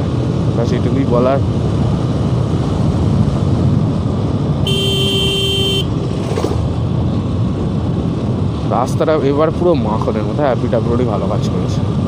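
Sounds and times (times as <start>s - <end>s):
wind rush: 0.0s - 12.0s
motorcycle engine: 3.2s - 7.0s
vehicle horn: 4.6s - 6.0s.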